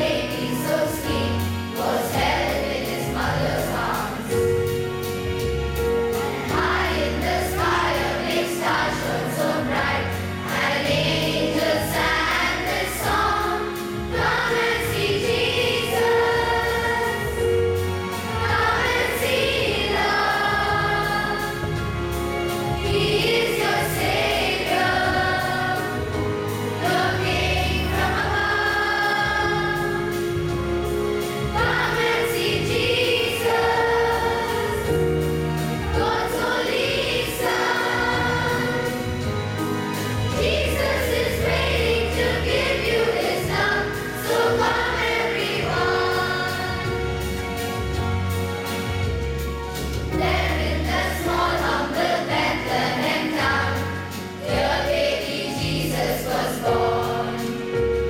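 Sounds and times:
children's choir singing a carol: 0.0 - 58.0.

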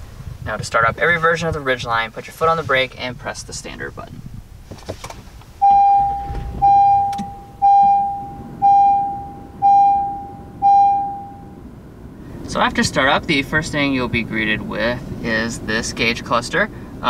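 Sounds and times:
seat belt reminder chime: 5.6 - 11.6.

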